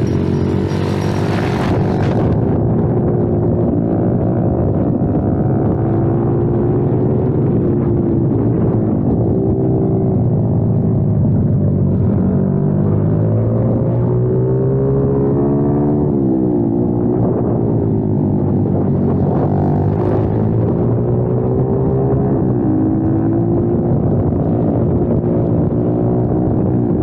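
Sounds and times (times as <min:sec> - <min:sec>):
motorbike engine revving: 0:00.0 - 0:02.6, 0:18.7 - 0:22.3.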